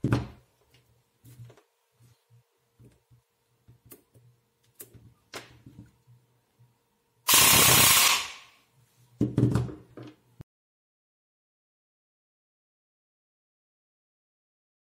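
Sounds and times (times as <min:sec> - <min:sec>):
airsoft gun firing full auto: 0:07.3 - 0:08.5.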